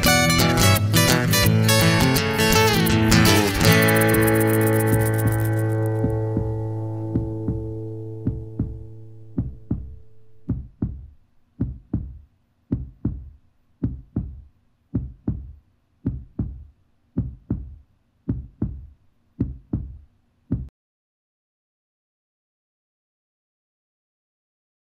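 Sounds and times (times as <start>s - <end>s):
heartbeat thumps: 3.2s - 20.7s
held music chord: 3.5s - 10.5s.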